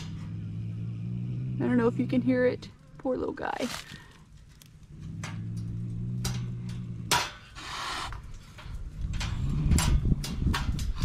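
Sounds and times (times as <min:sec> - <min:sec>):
cat growling: 0:00.0 - 0:02.8, 0:04.8 - 0:08.2
cat hissing and spitting: 0:07.5 - 0:08.2.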